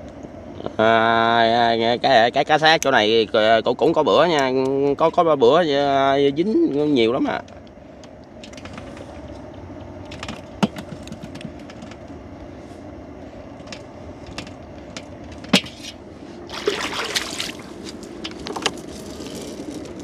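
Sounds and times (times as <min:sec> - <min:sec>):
steady low hum: 0:00.0 - 0:20.0
net and floats knocking hull: 0:16.5 - 0:17.7
water splash: 0:16.5 - 0:17.8.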